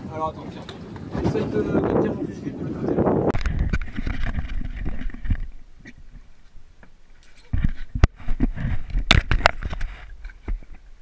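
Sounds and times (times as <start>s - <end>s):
wind rumble on microphone: 0.0s - 6.8s, 7.4s - 11.0s.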